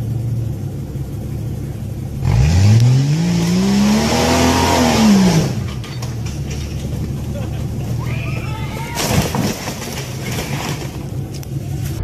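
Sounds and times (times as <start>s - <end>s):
suv engine revving: 2.0s - 8.1s.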